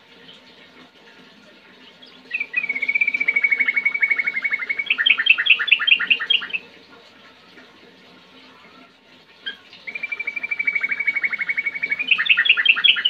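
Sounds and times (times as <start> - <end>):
bird singing trills: 2.0 - 6.6, 9.5 - 13.0.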